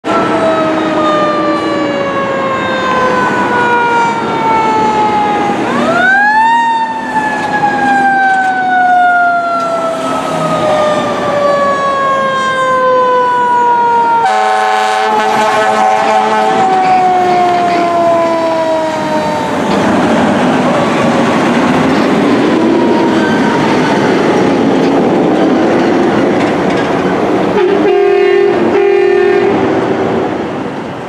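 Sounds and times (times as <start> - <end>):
loud horn blast: 14.2 - 18.8, 27.5 - 30.0.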